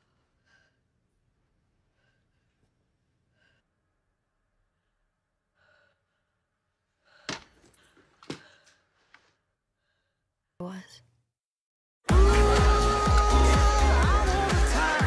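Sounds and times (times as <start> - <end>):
woman breathing and gasping: 0.0 - 4.1, 4.7 - 10.4.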